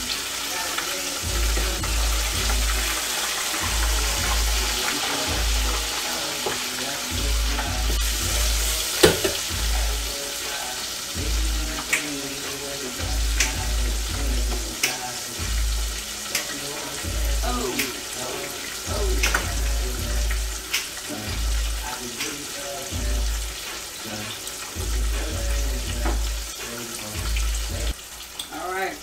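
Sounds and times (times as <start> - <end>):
mushrooms frying in hot oil: 0.0 - 29.0
tongs knocking against fryer: 9.0 - 9.7.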